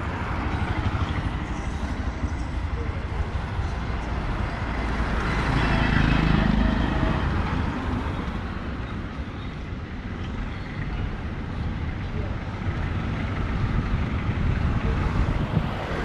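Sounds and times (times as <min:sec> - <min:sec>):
traffic rumble: 0:00.0 - 0:16.0
car passing by: 0:15.0 - 0:16.0.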